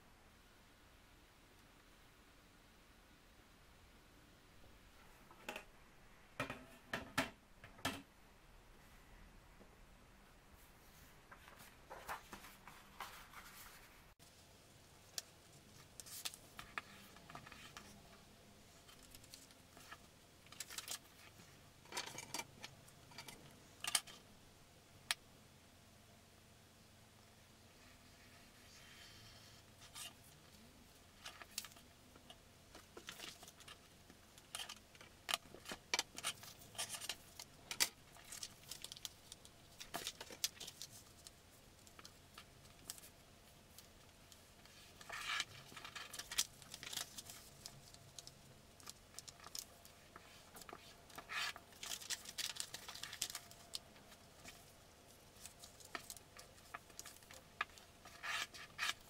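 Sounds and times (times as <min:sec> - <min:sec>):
paper rustling and crinkling: 0:10.9 - 0:14.2, 0:32.7 - 0:43.1, 0:43.7 - 0:59.0.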